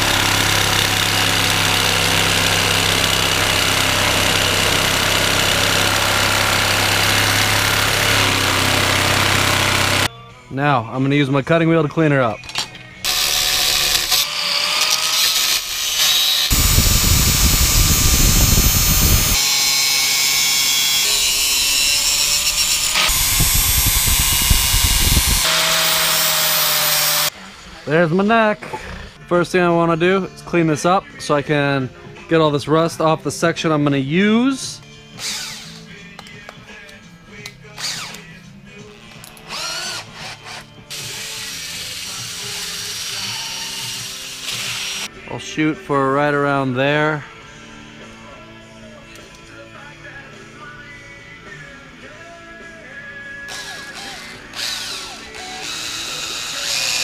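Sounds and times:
angle grinder grinding metal: 0.0s - 10.1s, 13.0s - 27.9s, 39.0s - 45.1s, 53.5s - 57.0s
cordless drill whining: 0.0s - 10.1s, 13.1s - 27.3s, 35.2s - 35.9s, 37.8s - 38.2s, 39.2s - 45.1s, 53.5s - 57.0s.

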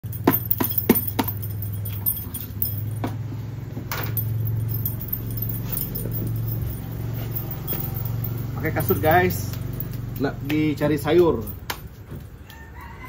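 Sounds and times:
steady low hum: 0.0s - 10.4s
keys jangling: 0.0s - 12.1s.

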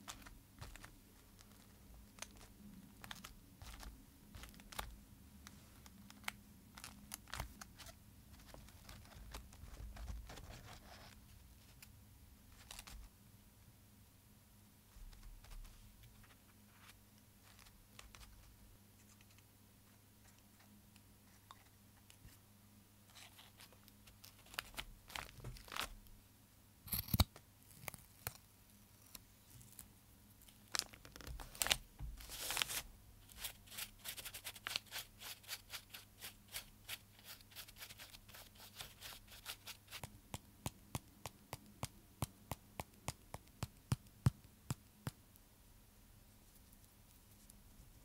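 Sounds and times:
paper rustling: 30.8s - 34.8s
paper tearing or crinkling: 31.5s - 39.8s.

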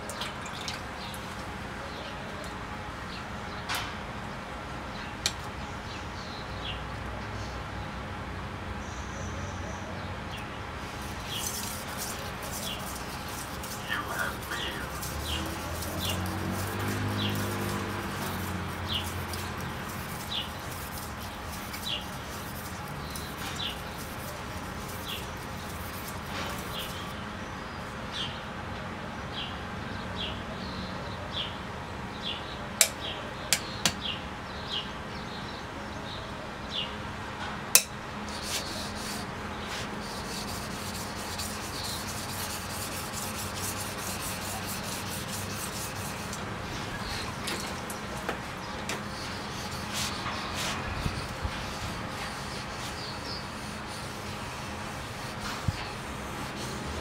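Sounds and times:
bird chirping: 38.4s - 54.6s.

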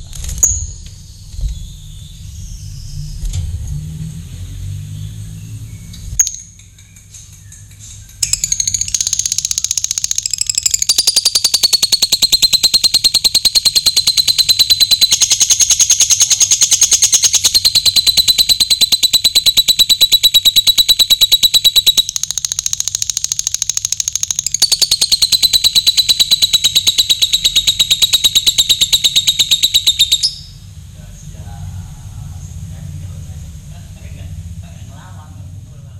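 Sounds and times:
lovebird chattering trill: 6.2s - 30.6s.

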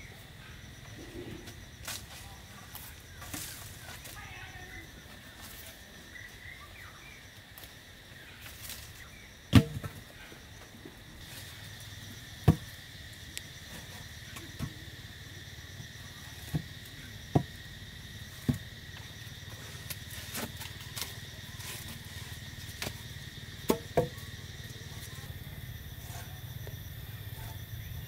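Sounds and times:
insects trilling: 0.0s - 28.0s
wooden poles knocking: 9.5s - 10.0s, 23.6s - 24.3s.

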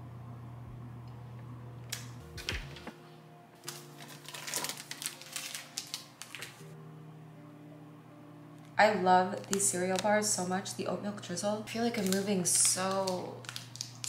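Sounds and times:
soft background music: 1.5s - 14.0s
snack box rustling: 3.6s - 6.6s.

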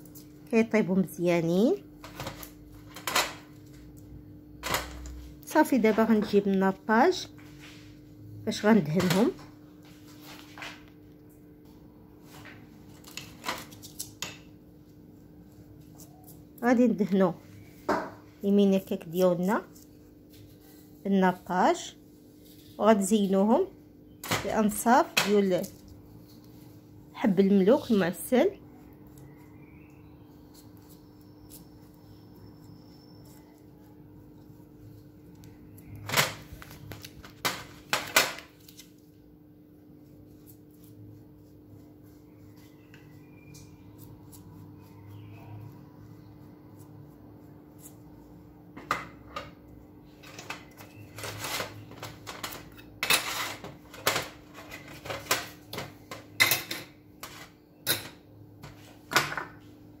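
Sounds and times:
pastry brush against glass bowl: 39.8s - 48.4s.

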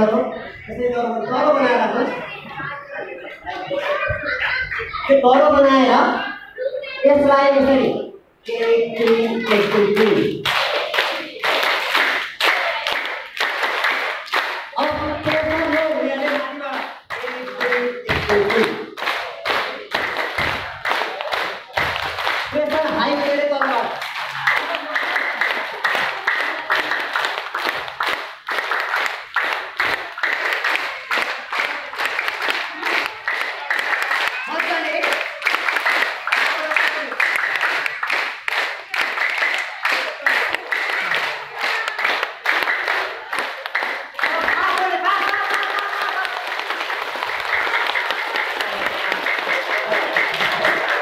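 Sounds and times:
people clapping in rhythm: 8.4s - 51.0s
man speaking into a microphone: 14.8s - 19.0s, 22.5s - 24.0s.

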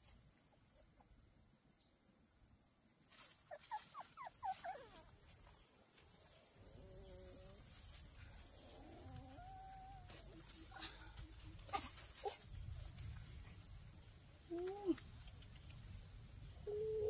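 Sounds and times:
puppy whimpering and yelping: 3.5s - 5.4s.

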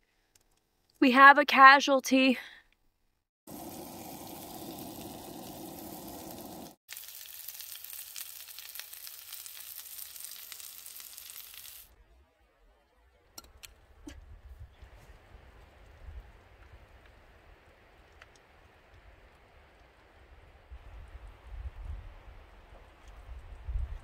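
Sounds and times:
dumplings sizzling in a frying pan: 3.5s - 11.9s.

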